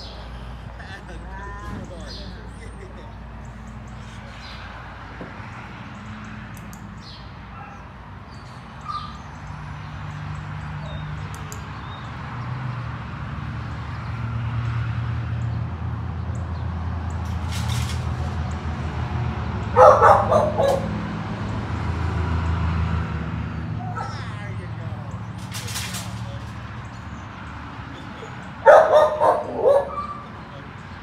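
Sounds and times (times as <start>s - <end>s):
dog barking: 19.7s - 21.0s, 23.8s - 24.3s, 28.6s - 30.4s.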